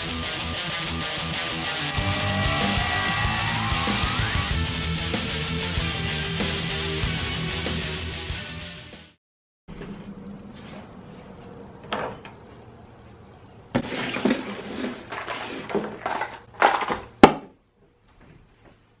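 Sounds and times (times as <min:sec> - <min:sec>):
cardboard box scraping and rustling: 0:13.8 - 0:16.3.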